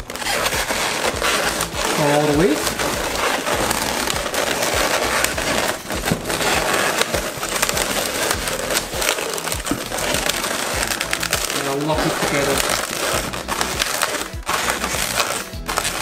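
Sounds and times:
balloons rubbing together: 0:00.0 - 0:16.0.

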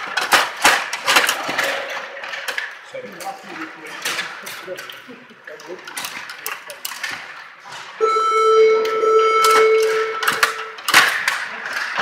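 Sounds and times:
table hockey rods clattering: 0:00.0 - 0:08.0, 0:08.8 - 0:12.0
electronic buzzer tone: 0:08.0 - 0:10.8.

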